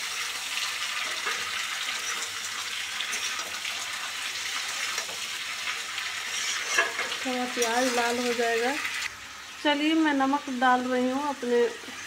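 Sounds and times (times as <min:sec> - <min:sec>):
onions sizzling in oil: 0:00.0 - 0:12.0
metal spatula scraping: 0:01.1 - 0:02.4, 0:03.0 - 0:03.7, 0:06.0 - 0:08.2.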